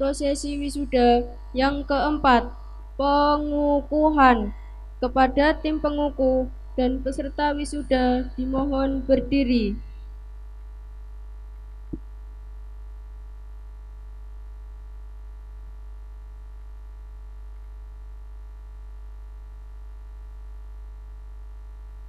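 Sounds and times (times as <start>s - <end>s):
faint steady tones: 0.0s - 10.0s
electrical mains hum: 0.0s - 22.0s.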